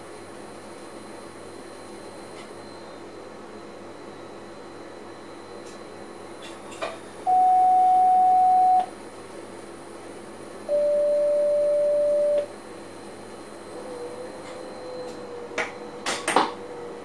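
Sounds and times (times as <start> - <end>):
electronic signal tones: 7.3 - 8.9, 10.7 - 12.5.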